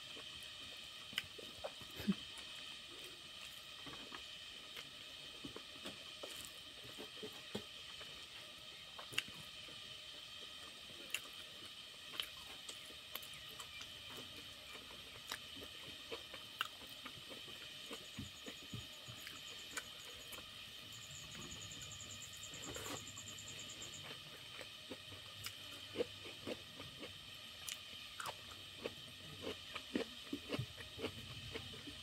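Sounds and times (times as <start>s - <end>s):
chewing: 11.0s - 11.4s, 12.0s - 20.5s, 22.5s - 32.0s.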